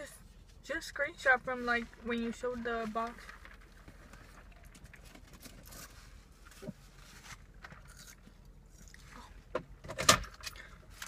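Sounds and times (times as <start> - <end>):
person chewing food: 7.8 - 9.2.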